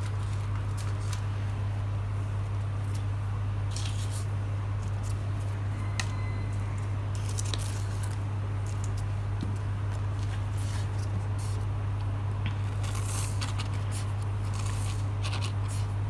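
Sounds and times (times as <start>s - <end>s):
low electrical hum: 0.0s - 16.0s
sand and card rustling: 10.0s - 11.7s, 12.6s - 16.0s.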